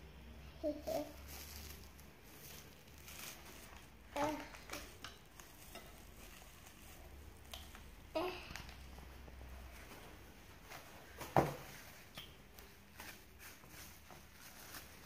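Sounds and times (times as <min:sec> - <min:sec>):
cling film crinkling: 0:00.9 - 0:08.9.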